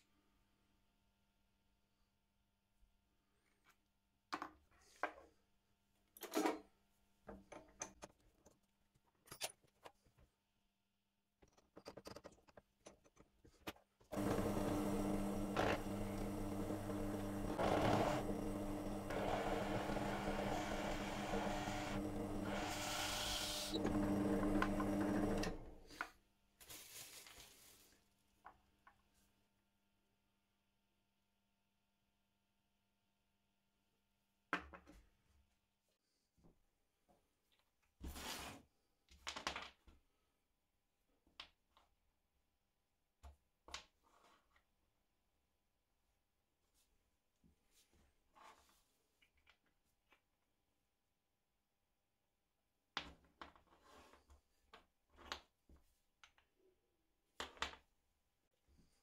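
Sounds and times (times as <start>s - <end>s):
electric power tool running: 14.1s - 25.8s.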